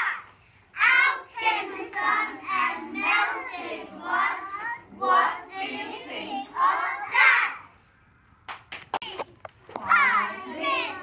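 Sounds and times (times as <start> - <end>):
children singing in unison: 0.8 - 7.5.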